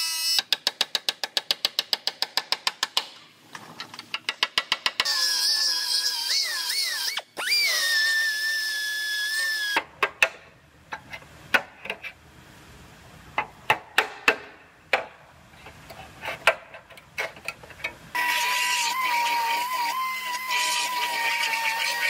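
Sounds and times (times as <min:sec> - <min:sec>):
pneumatic sander whining: 0:05.0 - 0:09.8, 0:18.2 - 0:22.0.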